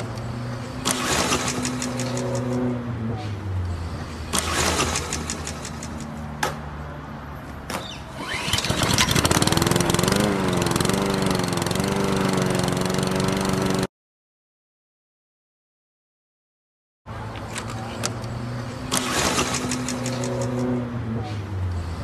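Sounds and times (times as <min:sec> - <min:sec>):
pull-start cord yanks: 0:08.2 - 0:09.7
small lawnmower engine running: 0:08.2 - 0:13.9.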